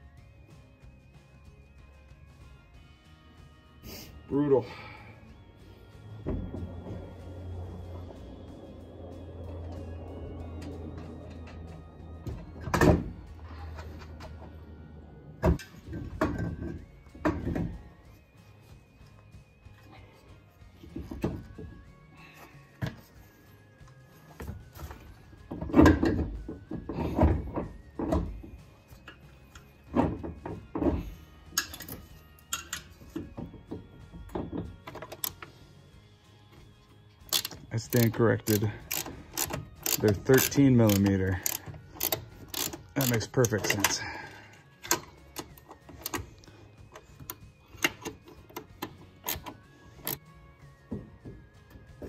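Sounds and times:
heavy metal clunks: 6.2s - 7.4s
socket wrench clicking on nuts: 37.3s - 43.9s.

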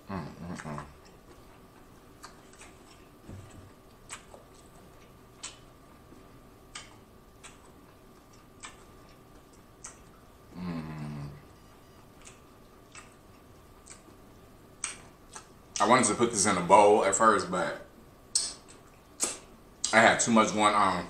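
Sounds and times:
person humming mmm: 0.0s - 1.0s, 10.5s - 11.7s
faint steady hum: 0.0s - 21.0s
mouth clicks: 18.3s - 20.0s
wet lip smacks: 18.3s - 20.0s.

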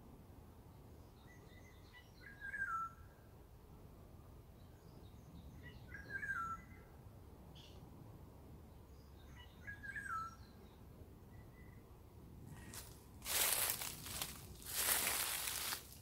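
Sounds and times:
faint woodland background noise: 0.0s - 16.0s
songbird whistling: 1.6s - 3.0s, 5.6s - 6.8s, 9.4s - 10.5s.

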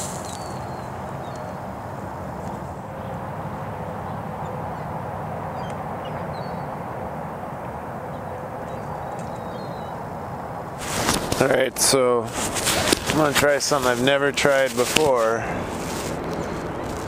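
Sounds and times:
outdoor background rumble: 0.0s - 17.0s.

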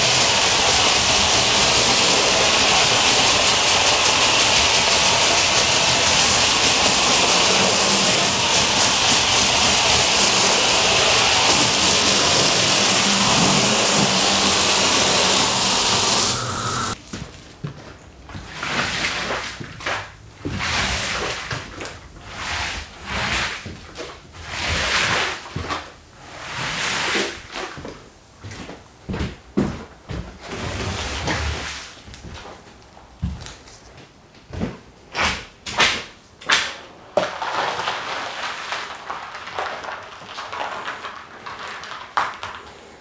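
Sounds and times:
squeegee swishing on wet rug: 0.0s - 16.3s
pressure washer spray hissing: 0.0s - 17.0s.

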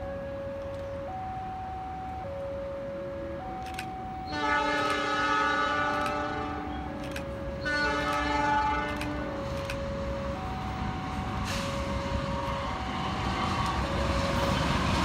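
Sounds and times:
locomotive horn blasts: 4.2s - 9.5s.

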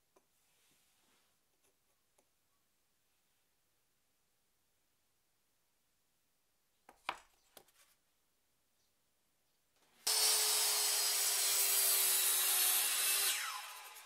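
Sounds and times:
circular saw cutting wood: 10.1s - 14.0s
saw blade winding down whine: 10.1s - 14.0s.

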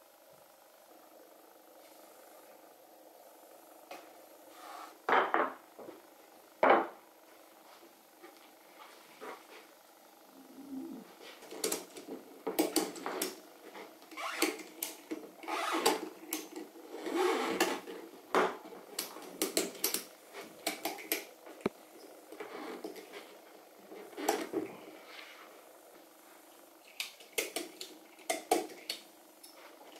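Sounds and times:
nylon webbing sliding through buckles: 15.5s - 15.9s.

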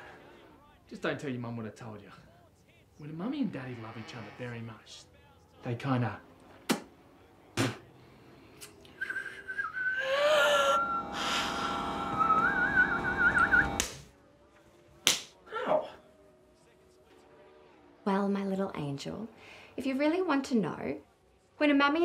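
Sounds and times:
sharp smack: 6.7s - 6.9s, 15.0s - 15.3s
whistling: 8.6s - 13.8s.

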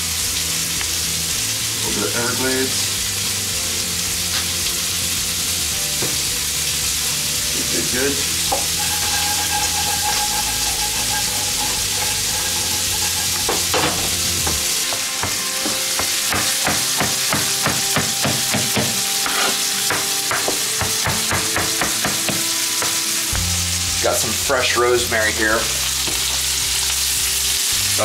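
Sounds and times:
food sizzling in pans: 0.0s - 28.0s
knife chopping on cutting board: 15.2s - 23.0s.

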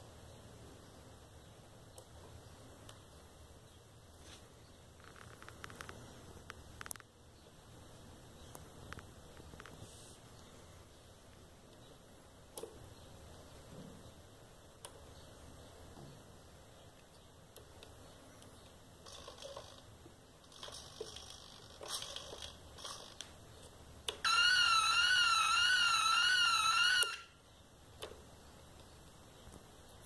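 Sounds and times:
warbling electronic siren: 24.2s - 27.4s.

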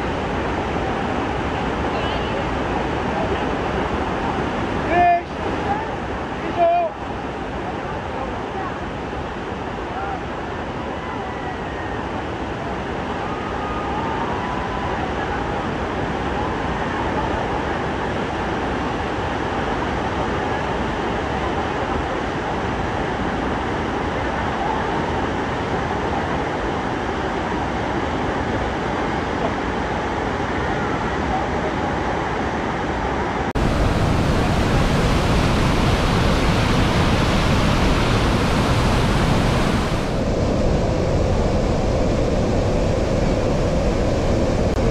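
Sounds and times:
waterfall rushing onto rocks: 33.6s - 40.2s.

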